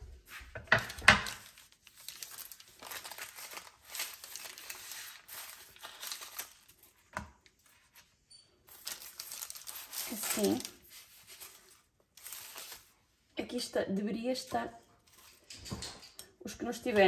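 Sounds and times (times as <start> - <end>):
baking paper crinkling: 0.0 - 15.8
puff pastry crackling: 0.8 - 7.9, 8.7 - 13.1.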